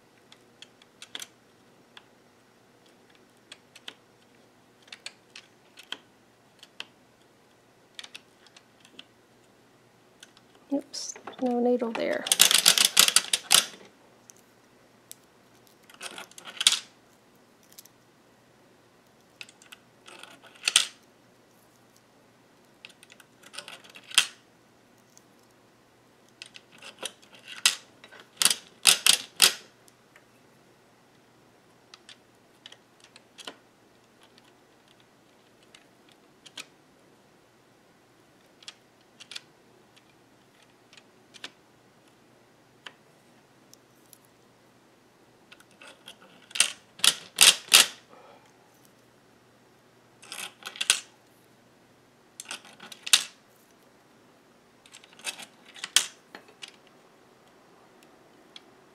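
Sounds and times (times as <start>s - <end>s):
knitting machine clattering clicks: 12.2s - 13.9s.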